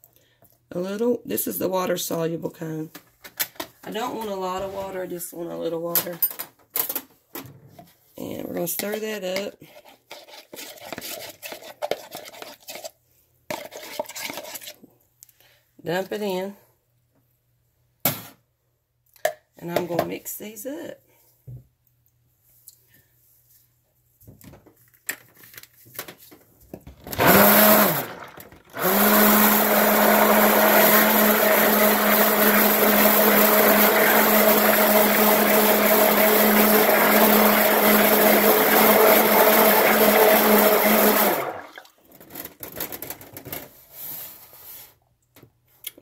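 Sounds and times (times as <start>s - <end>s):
stick blender motor hum: 27.1s - 41.7s.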